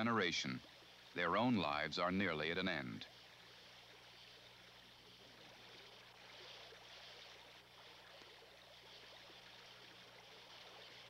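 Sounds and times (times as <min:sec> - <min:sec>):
faint steady hiss: 0:00.0 - 0:11.0
low electrical hum: 0:00.0 - 0:11.0.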